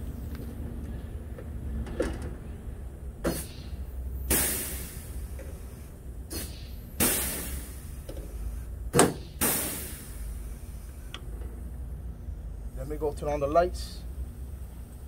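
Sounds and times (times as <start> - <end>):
rivet gun air hiss: 3.2 - 11.2.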